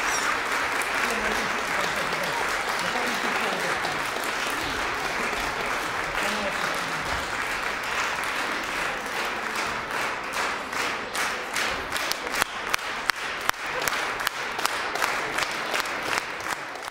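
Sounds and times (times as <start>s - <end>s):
audience applauding: 0.0s - 16.9s.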